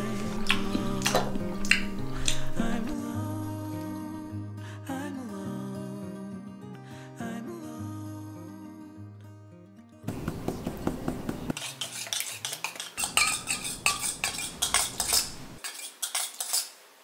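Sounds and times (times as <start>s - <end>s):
utensil scraping a metal bowl: 10.6s - 16.8s.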